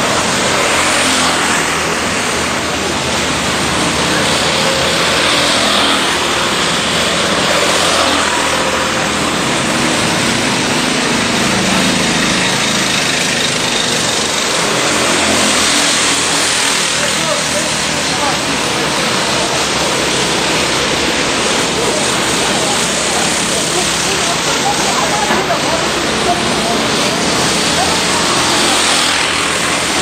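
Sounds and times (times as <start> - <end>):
kart engines accelerating and passing: 0.0 - 30.0
steady rush of noise: 0.0 - 30.0.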